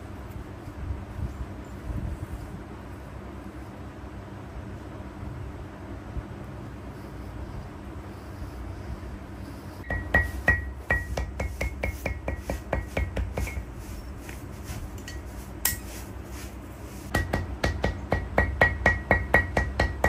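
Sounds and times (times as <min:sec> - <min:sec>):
metal tool tapping on stone: 0:09.8 - 0:13.7, 0:15.0 - 0:15.9, 0:17.1 - 0:20.0.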